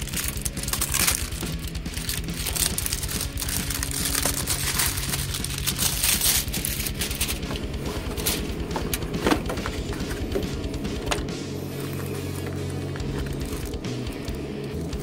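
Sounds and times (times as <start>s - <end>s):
cardboard box rustling and crinkling: 0.0s - 10.5s
box knocking on desk: 8.7s - 11.3s.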